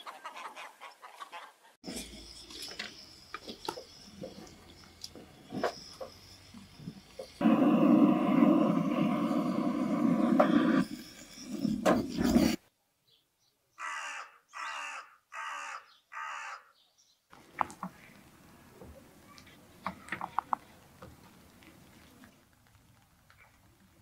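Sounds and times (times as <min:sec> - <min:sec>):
loud noise: 0:07.4 - 0:11.2
crow cawing: 0:13.8 - 0:16.7.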